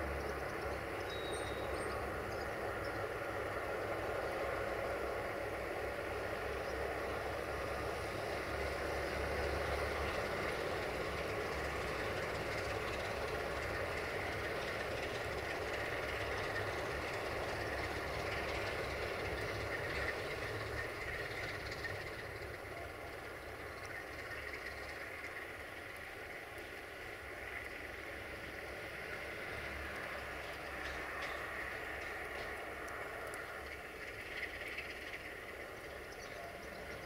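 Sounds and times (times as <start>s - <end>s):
locomotive diesel engine rumble: 0.0s - 37.0s.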